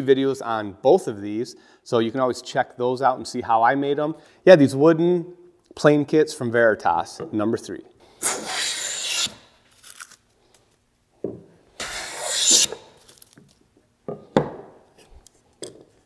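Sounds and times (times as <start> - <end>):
hand plane hissing strokes: 8.1 - 9.5, 11.8 - 13.0.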